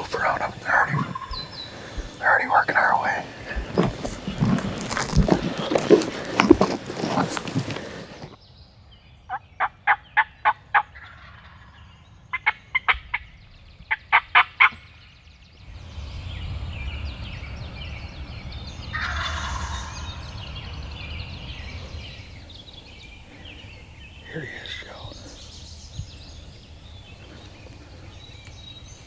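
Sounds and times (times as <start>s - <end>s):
songbirds chirping: 0.0s - 29.0s
turkey gobbling: 0.6s - 2.2s, 9.3s - 13.3s, 13.9s - 14.8s, 18.9s - 20.5s
low rumble: 14.8s - 29.0s.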